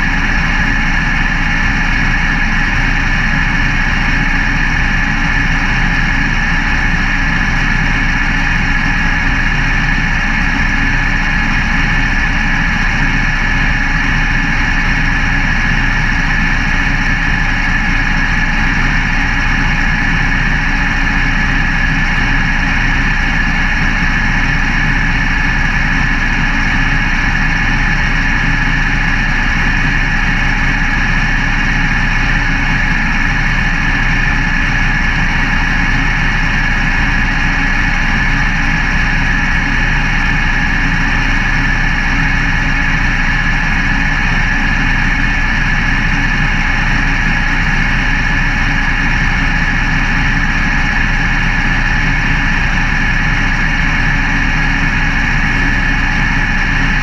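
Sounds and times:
race car engine idling: 0.0 - 57.0.

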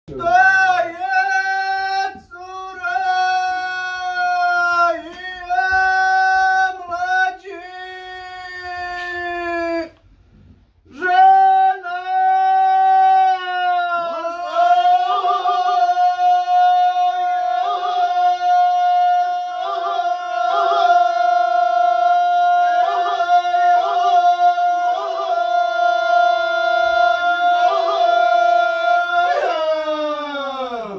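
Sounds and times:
men singing unaccompanied: 11.0 - 29.6.

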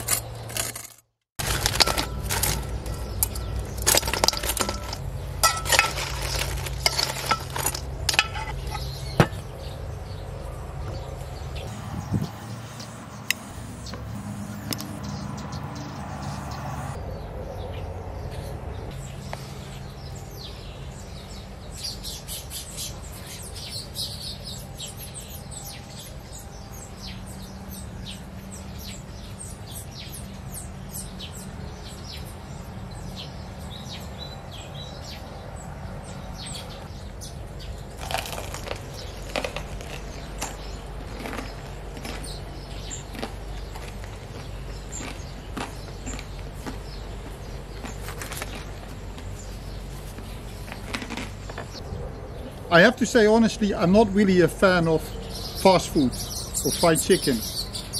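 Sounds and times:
birds chirping: 0.0 - 57.9
crunchy bites of fried chicken: 38.0 - 49.4, 50.1 - 51.8.

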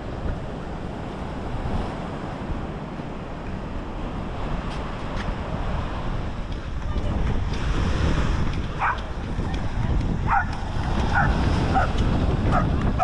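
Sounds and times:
beach surf: 0.0 - 13.0
wind buffeting microphone: 0.0 - 13.0.

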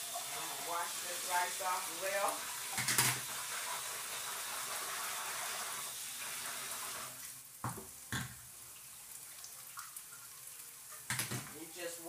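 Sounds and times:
kitchen tap running: 0.0 - 12.0.

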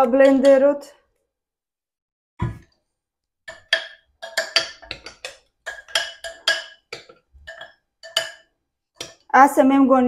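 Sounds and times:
metal spoon clinking on blender jar: 3.5 - 9.2.

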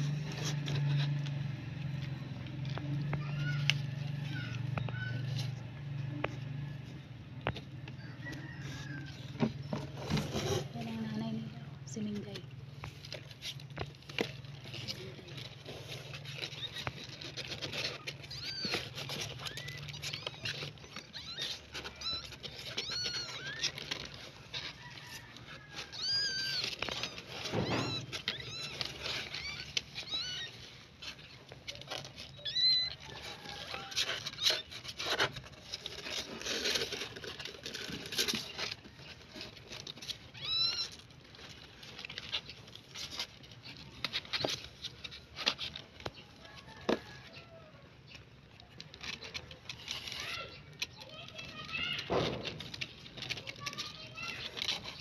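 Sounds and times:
rustling and scratching on cardboard: 0.0 - 55.0
kittens mewing: 2.2 - 6.6, 12.8 - 44.8.

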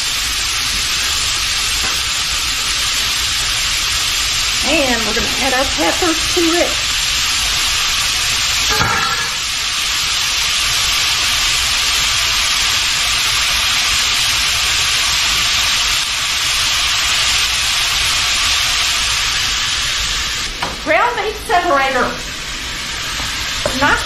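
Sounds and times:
meat and peppers sizzling in skillet: 0.0 - 24.0.

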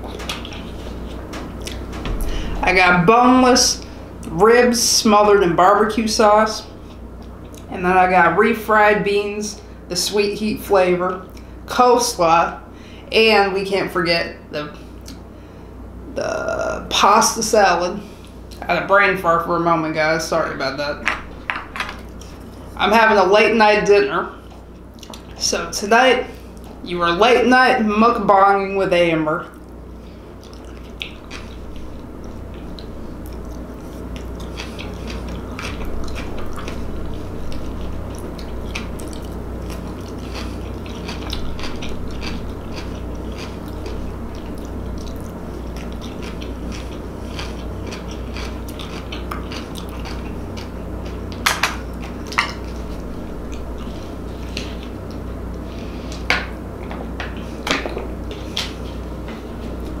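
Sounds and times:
person chewing food: 0.0 - 2.6, 24.4 - 25.4, 29.5 - 56.3
steady low hum: 0.0 - 60.0.

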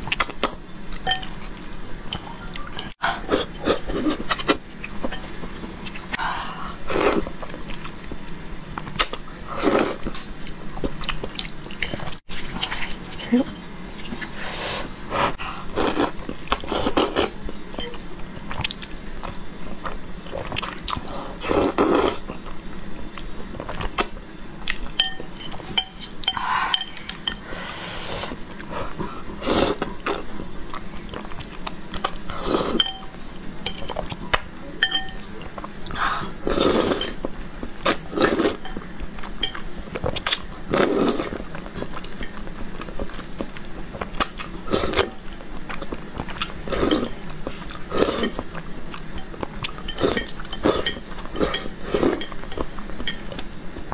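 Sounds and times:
chopsticks clinking on ceramic bowl: 25.0 - 27.4, 34.8 - 35.3
chewing: 33.8 - 53.5
slurping noodles: 36.2 - 37.2, 40.7 - 41.4, 46.7 - 47.1, 47.8 - 48.4.

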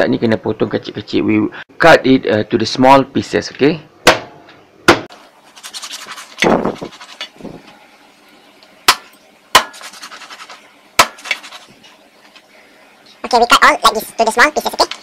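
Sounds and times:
cleaver chopping on wooden board: 4.1 - 4.3, 8.9 - 9.9, 11.0 - 11.3
scraping and handling noises: 5.5 - 7.7, 9.7 - 12.5.

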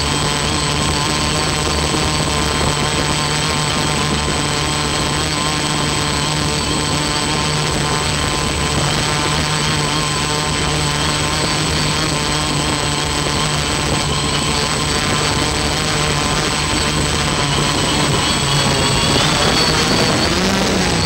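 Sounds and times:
drone propellers whirring: 0.0 - 21.0
high electronic whine: 0.0 - 21.0.

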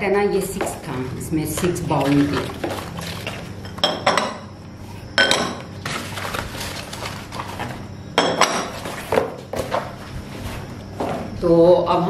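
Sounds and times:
glass bowls clinking: 1.5 - 4.5, 5.2 - 6.0, 8.1 - 9.0
paper packing rustling: 1.9 - 3.6, 5.8 - 7.9, 8.6 - 10.8.

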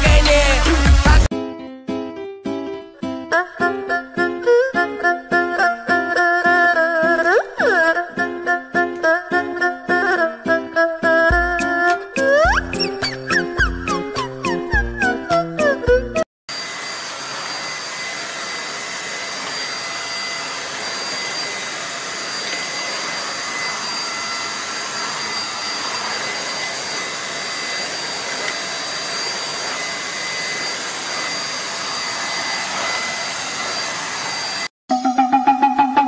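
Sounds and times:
vacuum cleaner running: 16.5 - 35.8.

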